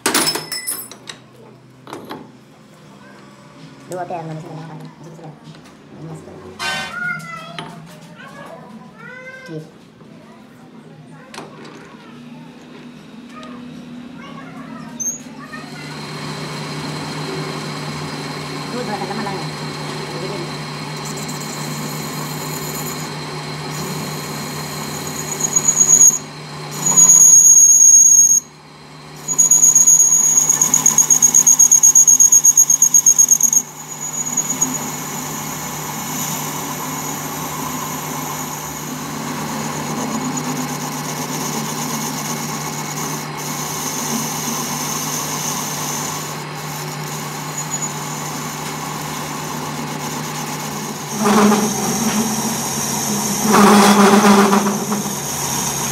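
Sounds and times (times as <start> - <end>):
lathe tool bit squealing on metal: 15.0 - 15.4, 20.9 - 28.5, 29.2 - 48.7, 49.8 - 55.9
lathe running hum: 15.7 - 55.9.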